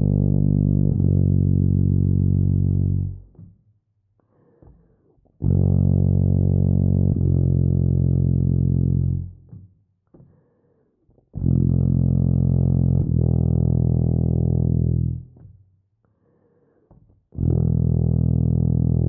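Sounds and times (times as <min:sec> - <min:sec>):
tuba playing low long tones: 0:00.0 - 0:03.4, 0:05.4 - 0:09.5, 0:11.4 - 0:15.4, 0:17.4 - 0:19.0.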